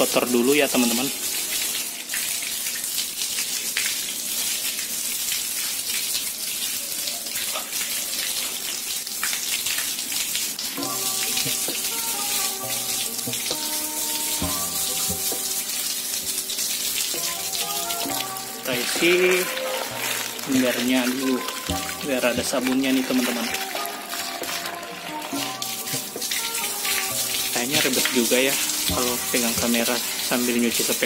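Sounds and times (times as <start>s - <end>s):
background music with held notes: 0.0s - 2.8s, 10.5s - 31.0s
hose water spraying: 0.0s - 31.0s
water splashing on tiled floor: 0.0s - 31.0s.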